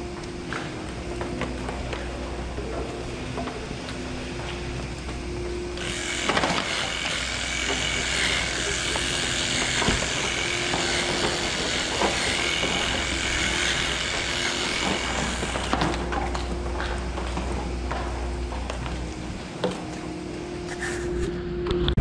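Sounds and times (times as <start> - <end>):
low steady hum: 0.0 - 22.0
electric clippers buzzing: 3.9 - 18.0.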